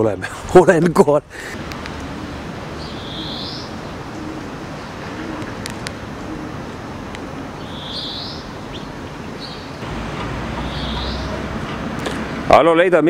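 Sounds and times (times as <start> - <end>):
steady background hiss: 0.0 - 13.0
small bird chirping: 2.8 - 4.0, 7.6 - 9.8, 10.6 - 11.4.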